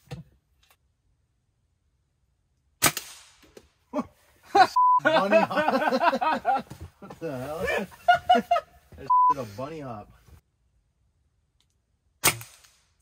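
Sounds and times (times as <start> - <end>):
sharp gunshot: 2.8 - 3.4, 12.2 - 12.9
brief beep: 4.8 - 5.0, 9.1 - 9.4.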